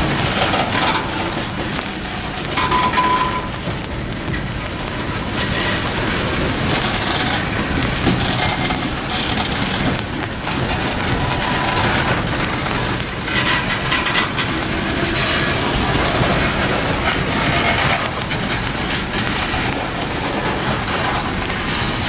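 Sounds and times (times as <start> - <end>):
train wheels rumbling on track: 0.0 - 22.0.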